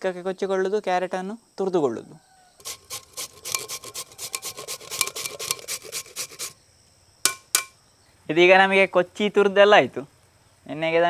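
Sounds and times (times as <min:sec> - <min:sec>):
carrot grated on metal grater: 0:02.6 - 0:06.6.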